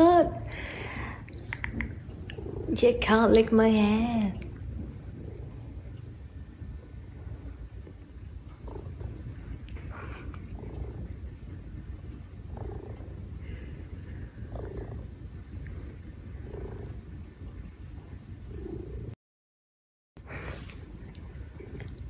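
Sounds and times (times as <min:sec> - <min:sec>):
cat purring: 0:00.0 - 0:19.2, 0:20.3 - 0:22.0.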